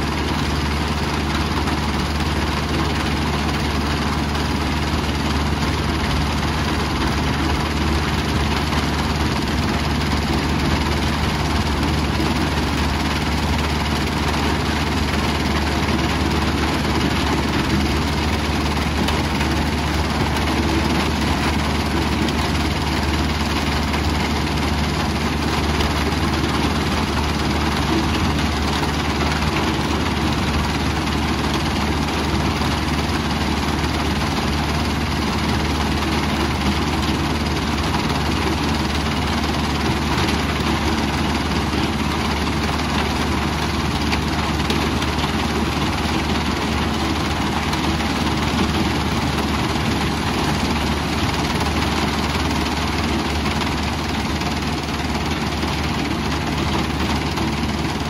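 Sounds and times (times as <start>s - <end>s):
diesel engine and vibrating screen: 0.0s - 58.0s.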